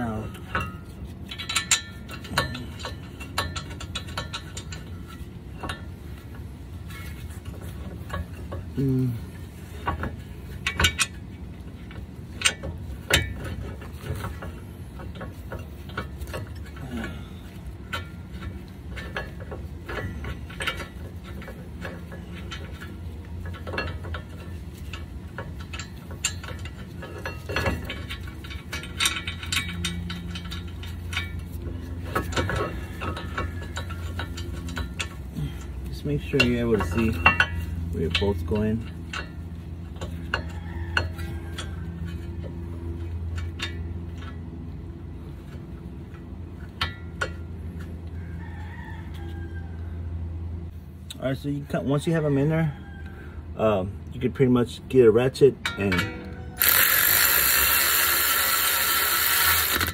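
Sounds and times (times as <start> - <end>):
metal clicks and clinks: 0.3 - 5.9, 11.8 - 44.6
sharp metal knocks: 55.6 - 57.5.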